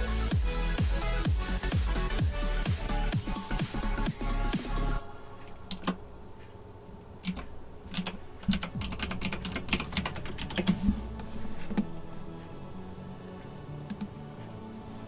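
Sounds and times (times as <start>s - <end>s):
keyboard typing: 5.7s - 6.0s, 7.2s - 11.0s, 13.9s - 14.2s.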